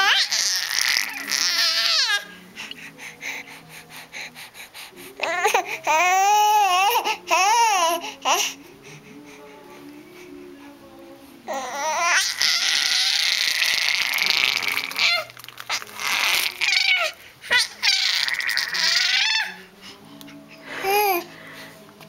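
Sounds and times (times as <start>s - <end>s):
baby squealing and shrieking: 0.0s - 2.2s, 11.8s - 19.6s.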